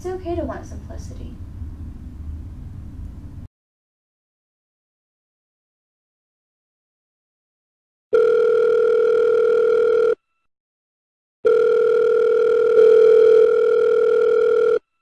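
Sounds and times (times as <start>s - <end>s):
telephone ringing tone: 8.1s - 10.2s, 11.4s - 15.0s.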